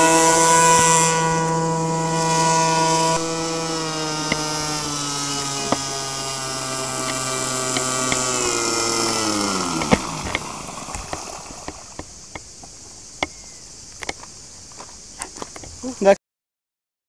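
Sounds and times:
small propeller engine winding down: 0.0 - 12.4
sharp clicks and knocks: 4.2 - 14.3.

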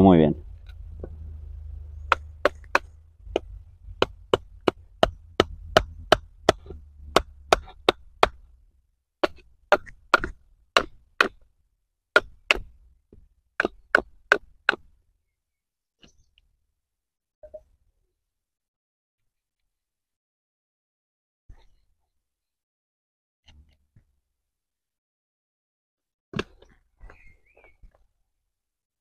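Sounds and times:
baton knocking on knife splitting wood: 2.0 - 8.4, 9.2 - 11.4, 12.1 - 14.9.

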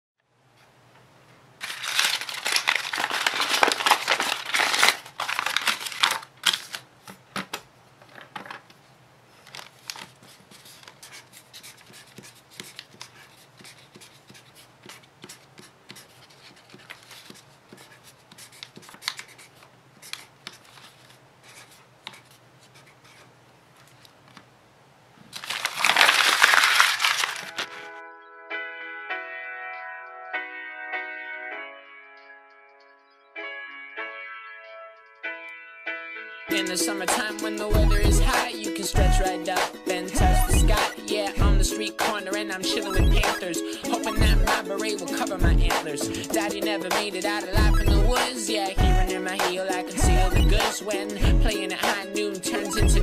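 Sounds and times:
paper being crumpled: 1.6 - 6.9, 9.4 - 11.8, 16.2 - 17.4, 20.6 - 21.7, 25.3 - 27.9
paper crinkling: 1.6 - 7.5, 9.3 - 24.4, 25.2 - 27.9
marker scratching on paper: 10.0 - 24.0.

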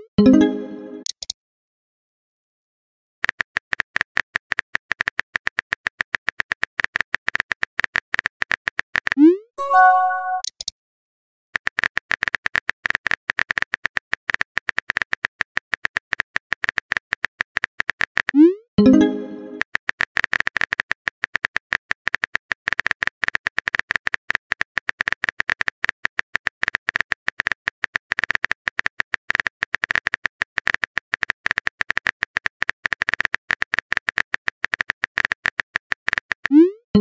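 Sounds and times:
keyboard typing clicks: 6.9 - 10.7.

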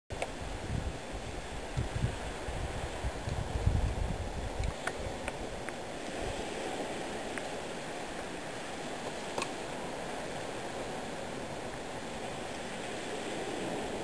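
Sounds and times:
water rushing: 0.1 - 14.0.

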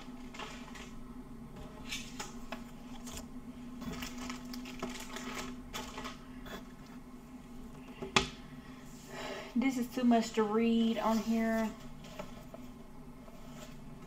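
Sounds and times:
plastic wrappers crinkling: 3.8 - 6.2.

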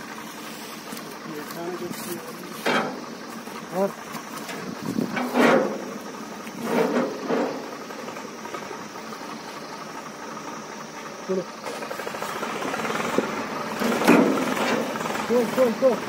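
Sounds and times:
tractor engine idling: 0.0 - 16.0
men calling and grunting: 0.8 - 16.0.

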